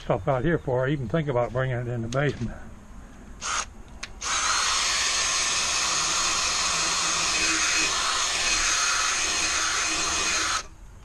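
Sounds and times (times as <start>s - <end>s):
drill wire brush whirring on steel: 3.4s - 10.8s.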